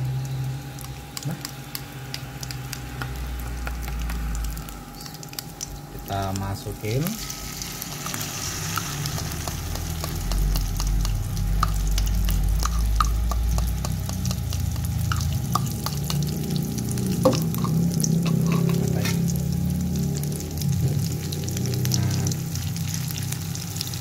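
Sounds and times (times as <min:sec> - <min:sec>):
batter sizzling in hot oil: 0:00.0 - 0:24.0
metal spatula stirring in wok: 0:17.2 - 0:18.9.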